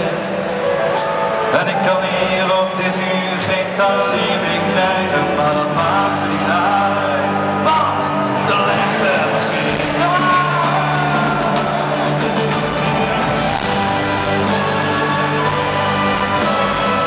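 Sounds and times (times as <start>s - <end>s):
live pop band playing: 0.0s - 17.0s
person singing: 0.0s - 17.0s
crowd shouting: 5.8s - 17.0s.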